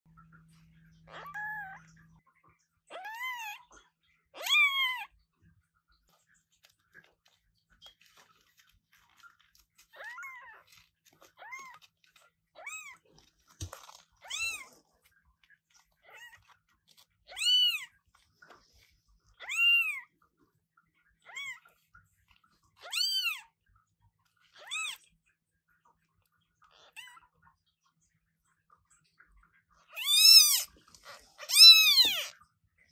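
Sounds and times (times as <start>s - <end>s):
kitten mewing: 30.0s - 32.3s.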